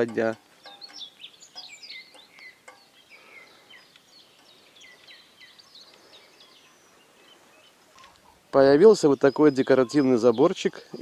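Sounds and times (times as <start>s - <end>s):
small songbirds chirping: 0.0s - 11.0s
faint clicks: 5.8s - 6.2s.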